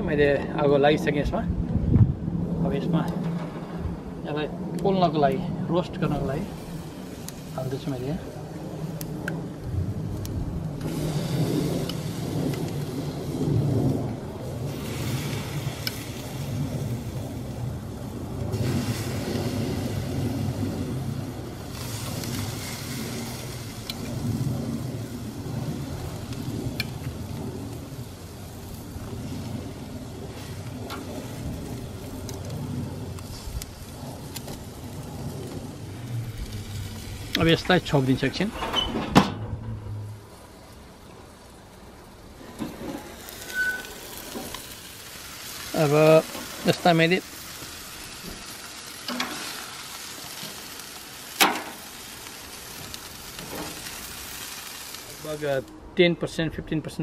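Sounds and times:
steady low rush: 0:00.0 - 0:38.7, 0:39.3 - 0:43.4
chicken sizzling on a grill: 0:04.4 - 0:38.5, 0:40.1 - 0:55.7.

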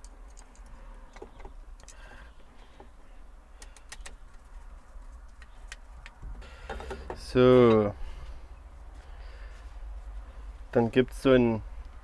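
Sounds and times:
small parts clicking and tapping: 0:00.0 - 0:02.0, 0:02.7 - 0:04.5
steady low rumble: 0:07.2 - 0:12.0.

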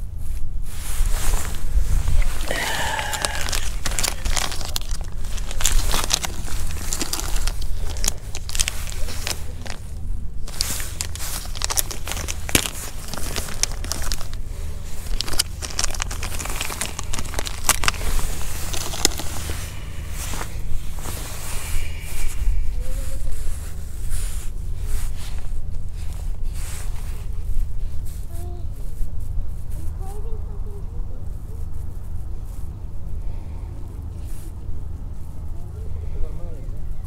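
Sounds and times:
wind rumble on microphone: 0:00.0 - 0:37.0
plastic packet crinkling: 0:01.4 - 0:21.4.

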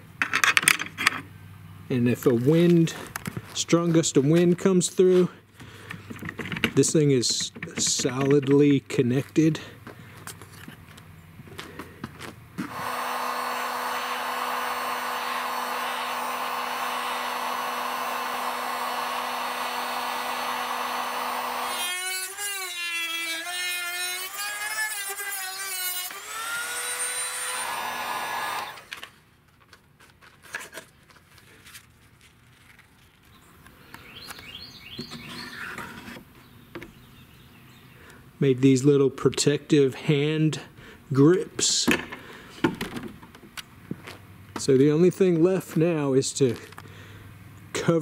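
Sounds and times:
rotary tool cutting plastic: 0:12.6 - 0:29.2
rotary tool whining: 0:12.6 - 0:29.2, 0:35.0 - 0:36.3.

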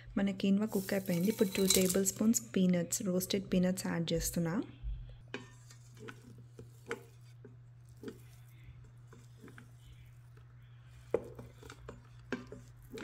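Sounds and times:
spatula scraping and knocking pot: 0:05.3 - 0:13.0.

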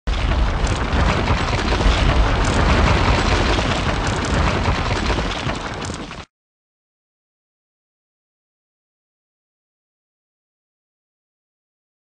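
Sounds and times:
wall cracking and crumbling: 0:00.1 - 0:06.3.

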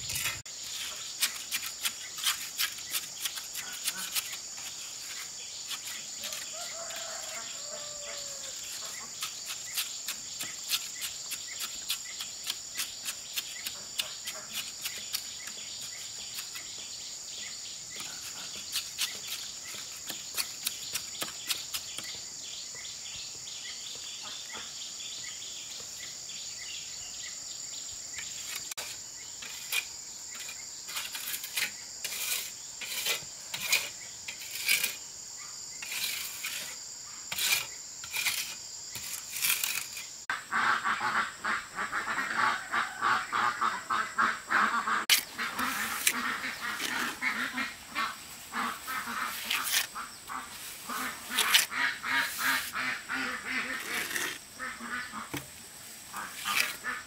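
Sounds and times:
hand tool scraping and tapping: 0:00.0 - 0:16.8, 0:17.9 - 0:22.2, 0:28.2 - 0:35.0, 0:35.8 - 0:40.2, 0:45.1 - 0:47.4, 0:48.9 - 0:50.0, 0:50.9 - 0:52.8, 0:56.2 - 0:56.9
insects droning: 0:00.0 - 0:57.0.

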